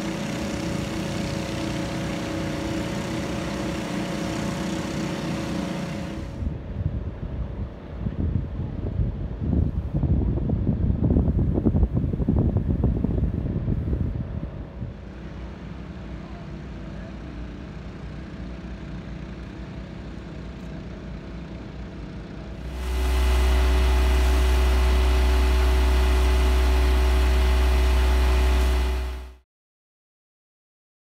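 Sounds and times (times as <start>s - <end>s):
engine drone: 0.0s - 6.8s, 14.5s - 29.4s.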